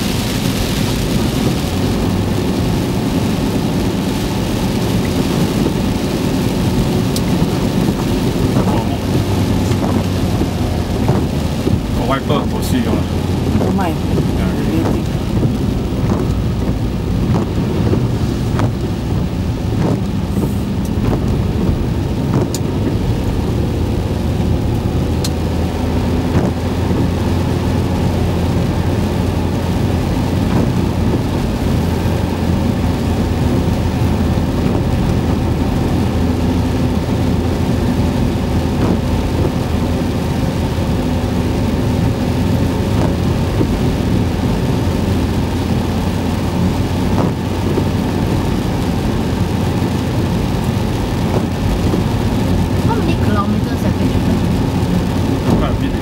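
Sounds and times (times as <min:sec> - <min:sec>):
car engine hum: 0:00.0 - 0:56.0
tyre rumble on wet road: 0:00.0 - 0:56.0
light ticks: 0:07.1 - 0:07.3, 0:22.4 - 0:22.7.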